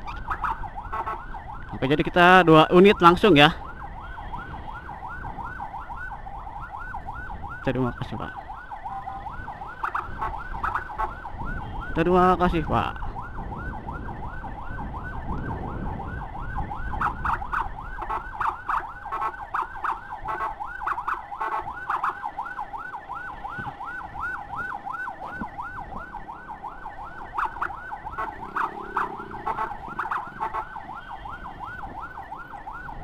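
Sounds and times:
electronic siren yelping: 0.0 - 12.0, 13.1 - 33.0
road noise: 0.0 - 33.0
motorcycle engine: 28.1 - 30.6.

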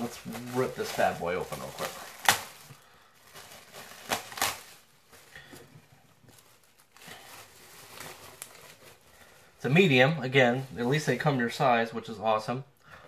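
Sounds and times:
plastic bag ripping: 0.0 - 5.4, 6.3 - 11.2
plastic crinkling: 0.0 - 11.4.

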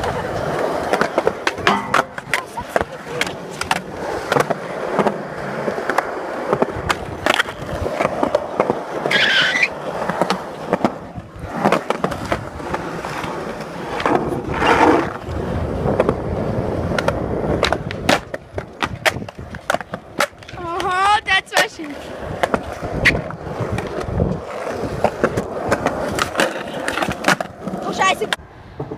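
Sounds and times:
skateboard clicks and knocks: 0.0 - 28.9
skateboard wheels rolling on asphalt: 0.0 - 28.9
wheel squeal: 9.0 - 9.8.

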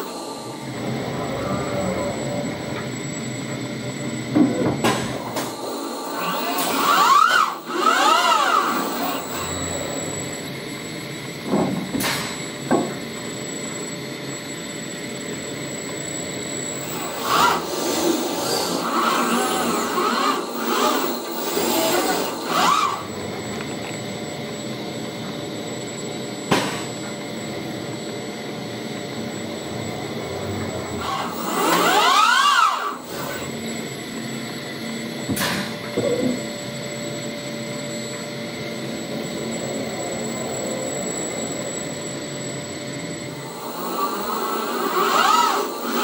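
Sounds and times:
robot arm servo whining: 0.0 - 11.4, 15.1 - 25.8, 29.4 - 36.5, 38.8 - 46.0.

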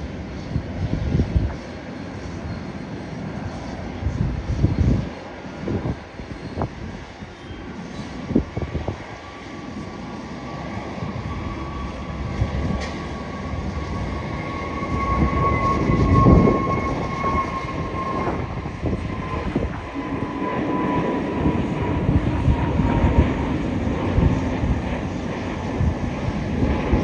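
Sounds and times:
jet engines rumbling and whining: 0.0 - 27.0.

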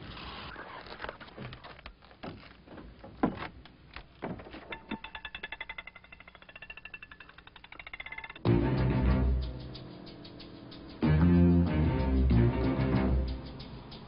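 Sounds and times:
knocks: 2.2 - 8.2
fast even ticking: 5.0 - 14.0
guitar and bass film score: 8.4 - 14.0.

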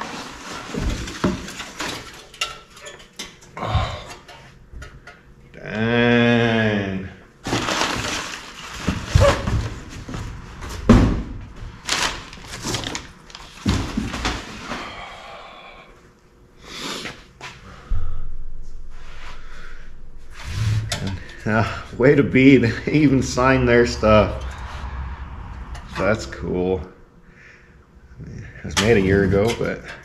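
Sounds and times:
packaging rustling and scraping: 0.0 - 2.2, 7.4 - 10.7, 11.6 - 14.7.

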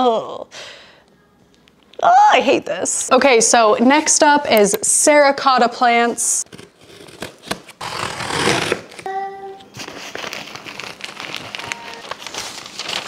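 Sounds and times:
paper packing crinkling: 6.9 - 13.0.

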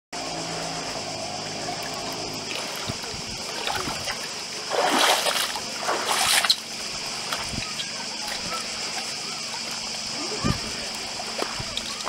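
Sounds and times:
steady high hiss: 0.2 - 12.0
sea waves splashing on rocks: 1.8 - 7.5.

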